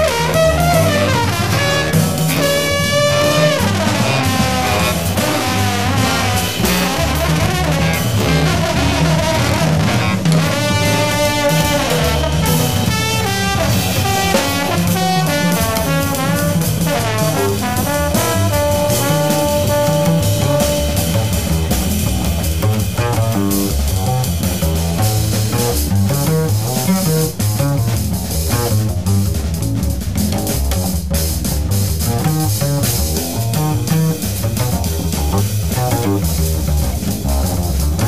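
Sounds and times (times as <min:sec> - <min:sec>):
saxophones: 0:00.0 - 0:23.1
double bass: 0:00.0 - 0:38.0
drum kit: 0:00.0 - 0:38.0
trombone: 0:00.0 - 0:38.0.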